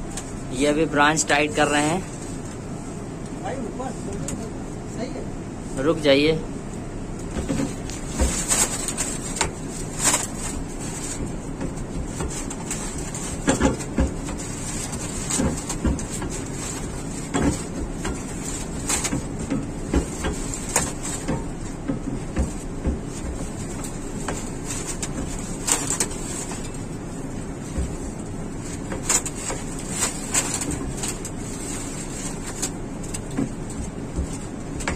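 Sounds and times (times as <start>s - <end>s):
steady background noise: 0.0s - 34.9s
knocks and clicks of pipes: 7.2s - 26.8s.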